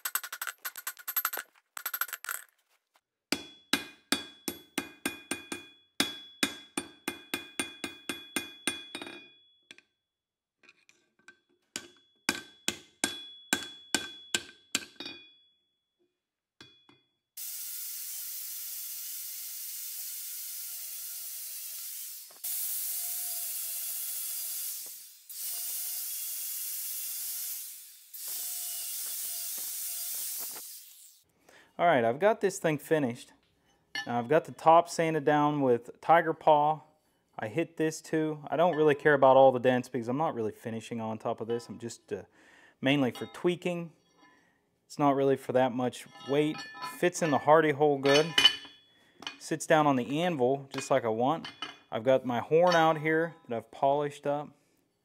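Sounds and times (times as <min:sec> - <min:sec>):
hammer striking steel on anvil: 0:03.3 - 0:09.8, 0:11.8 - 0:15.4, 0:34.0 - 0:34.3, 0:46.1 - 0:49.4, 0:50.7 - 0:51.9, 0:52.6 - 0:53.0
angle grinder sanding steel: 0:17.4 - 0:31.2.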